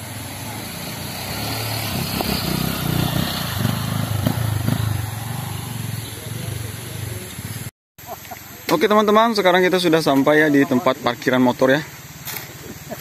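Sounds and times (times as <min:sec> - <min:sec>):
motorcycle engine revving: 0:00.0 - 0:07.7.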